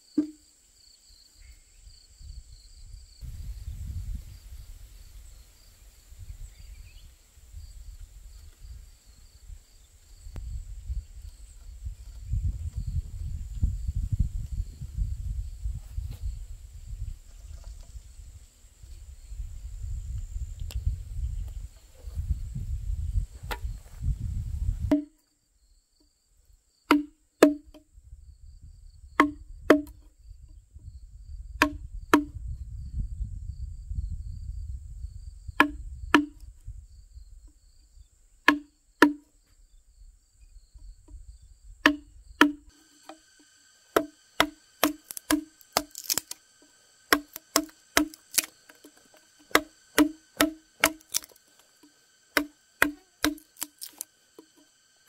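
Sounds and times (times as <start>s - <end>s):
mallet striking chisel: 24.9s - 25.2s, 26.9s - 27.8s, 29.2s - 30.0s, 31.6s - 32.3s, 38.5s - 39.2s, 41.8s - 43.2s, 43.9s - 46.4s, 47.1s - 54.6s.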